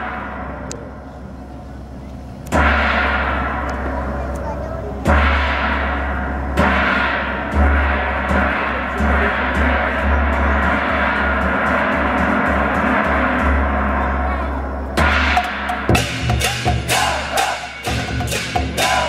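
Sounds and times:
deep drum beats: 2.3 - 19.0
large gong strokes: 2.4 - 19.0.

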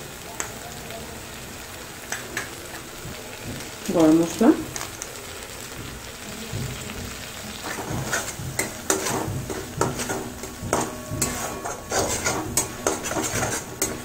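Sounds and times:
spice paste sizzling: 0.0 - 14.0
metal spatula scraping a pan: 7.5 - 14.0.

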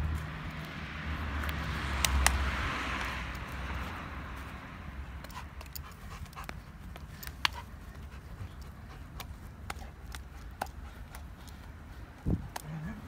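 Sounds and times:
dog panting: 5.2 - 13.0.

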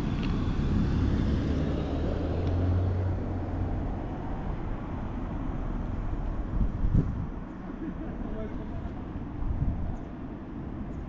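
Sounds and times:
wind buffeting microphone: 6.4 - 7.5, 9.3 - 11.0.

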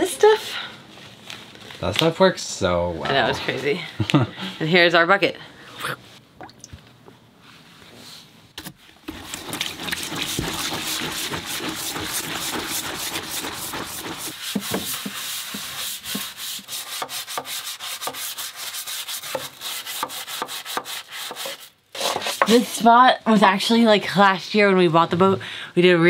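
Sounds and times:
soap being poured: 9.0 - 15.7
scrub brush scrubbing: 9.0 - 23.5.

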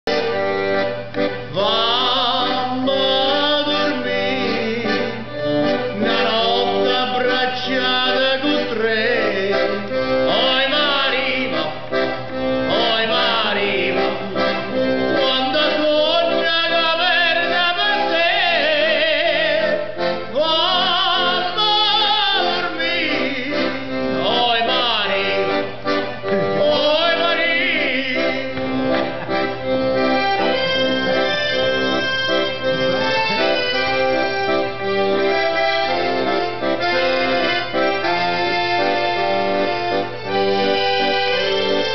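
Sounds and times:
accordion chords: 0.0 - 41.9
man singing: 1.5 - 25.7, 26.3 - 29.2.

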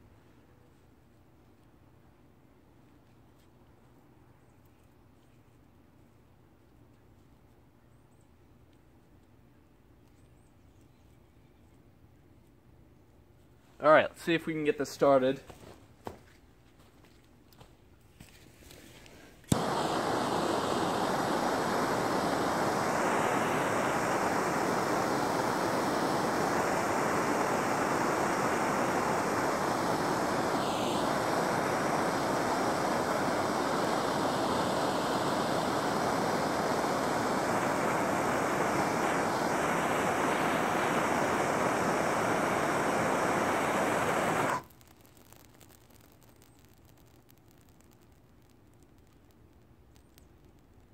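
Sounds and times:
torch flame hissing: 18.7 - 49.4
torch ignition click: 19.4 - 44.9.

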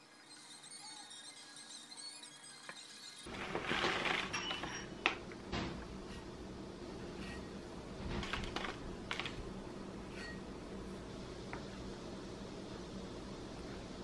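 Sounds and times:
plastic bag crinkling: 3.3 - 5.2, 8.2 - 9.4
low steady hum: 3.3 - 14.0.

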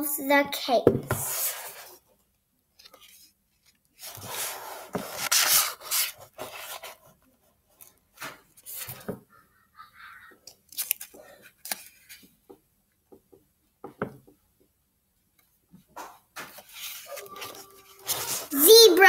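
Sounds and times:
book pages turning: 2.8 - 9.1, 10.5 - 12.4, 16.4 - 18.6.

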